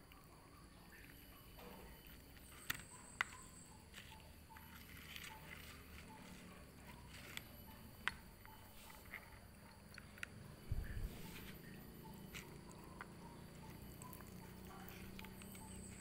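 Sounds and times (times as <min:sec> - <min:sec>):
cats chewing: 0:03.9 - 0:16.0.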